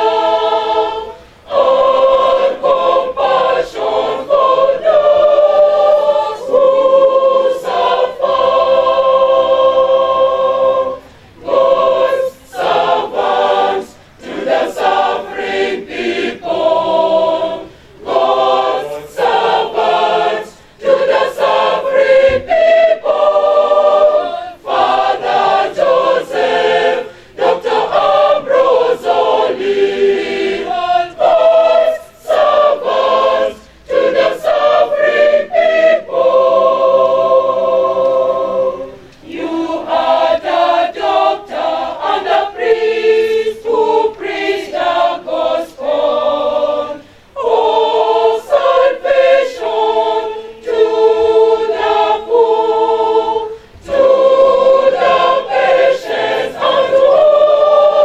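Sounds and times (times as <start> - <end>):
mixed choir singing: 0.0 - 58.0.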